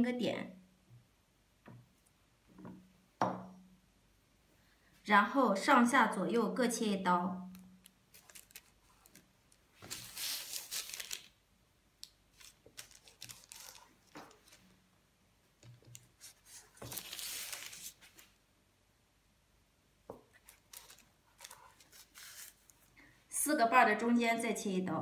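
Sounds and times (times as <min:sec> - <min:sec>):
paper rustling: 0:08.1 - 0:11.3, 0:12.3 - 0:14.7, 0:15.7 - 0:18.4, 0:20.4 - 0:22.9
knife cutting dough on paper: 0:21.4 - 0:22.7.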